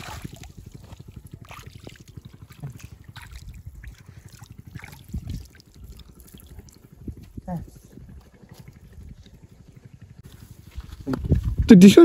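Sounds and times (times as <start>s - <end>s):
small water splashes and drips: 0.0s - 7.3s
wind on microphone: 2.1s - 9.8s, 10.6s - 12.0s.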